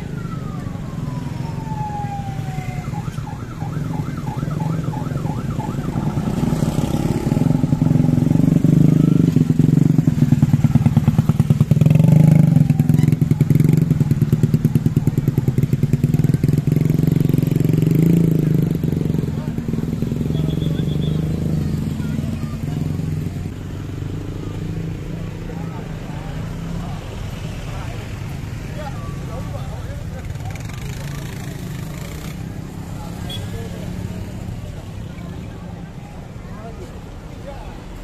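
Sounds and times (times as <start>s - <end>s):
siren wailing and warbling: 0.0s - 8.3s.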